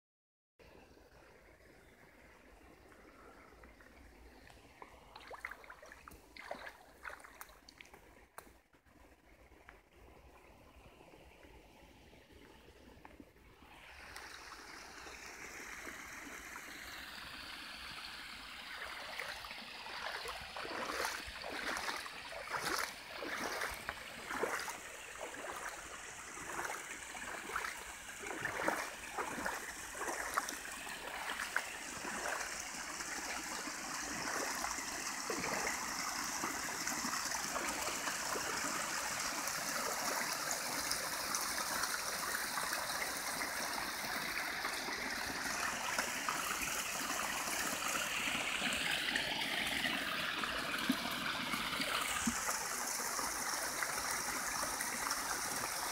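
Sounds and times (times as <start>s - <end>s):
stream flowing through dam: 0.9s - 55.9s.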